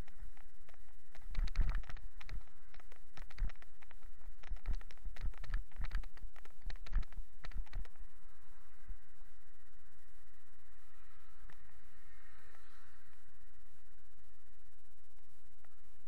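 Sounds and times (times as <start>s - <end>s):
bicycle rattling on rough path: 0.0s - 8.7s.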